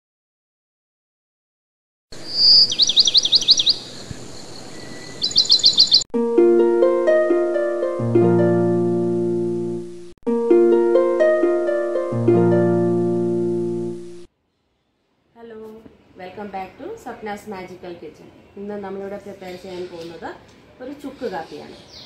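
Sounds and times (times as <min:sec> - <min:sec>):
high chirping trill: 0:05.2 - 0:14.3
plucked melody: 0:06.1 - 0:14.3
low bass notes: 0:06.2 - 0:14.3.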